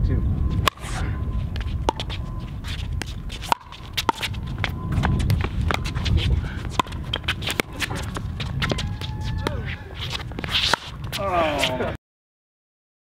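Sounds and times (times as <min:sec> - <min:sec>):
sneakers shuffling on court: 0:00.5 - 0:11.9.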